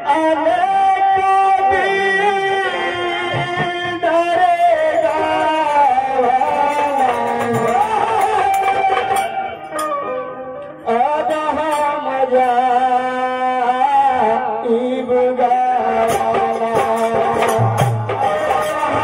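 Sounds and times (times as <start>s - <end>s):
man singing devotional song: 0.0s - 19.0s
percussion strikes: 0.8s - 14.6s, 15.8s - 19.0s
held instrumental notes: 2.3s - 13.2s.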